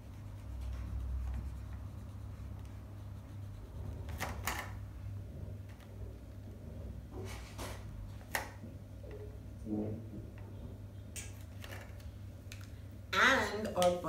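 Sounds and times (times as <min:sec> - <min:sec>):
marker scratching on paper: 0:00.0 - 0:04.8
steady low hum: 0:00.0 - 0:14.0.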